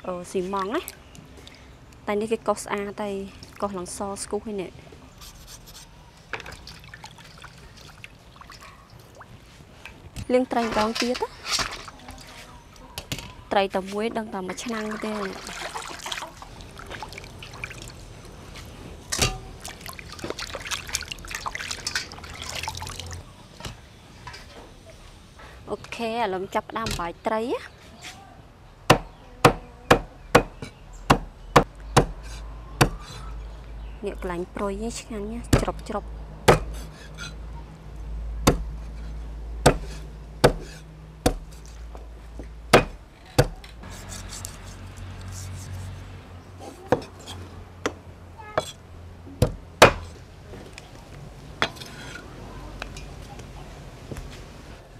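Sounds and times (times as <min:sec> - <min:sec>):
water splashing in a bowl: 0:06.4 - 0:09.3, 0:14.6 - 0:18.1, 0:19.1 - 0:23.2
cleaver chopping on wooden block: 0:28.9 - 0:32.2, 0:32.8 - 0:33.2, 0:36.5 - 0:36.8, 0:38.5 - 0:38.7, 0:39.6 - 0:41.5, 0:42.7 - 0:43.6, 0:49.4 - 0:50.0.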